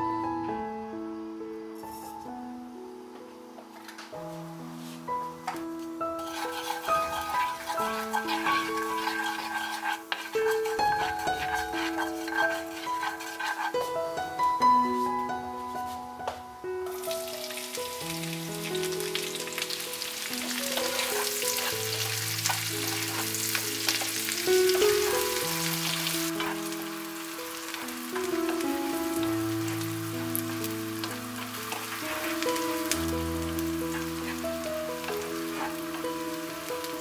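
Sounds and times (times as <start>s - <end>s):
gentle instrumental music: 0.0s - 37.0s
onions sizzling in hot oil: 4.5s - 15.2s, 16.8s - 37.0s
wooden spatula stirring: 6.2s - 15.1s, 19.6s - 37.0s.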